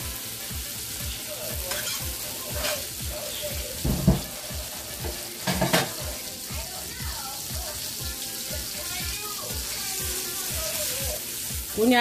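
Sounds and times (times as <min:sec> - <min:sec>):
butter sizzling in a frying pan: 0:00.0 - 0:12.0
dull knock: 0:03.8 - 0:04.3.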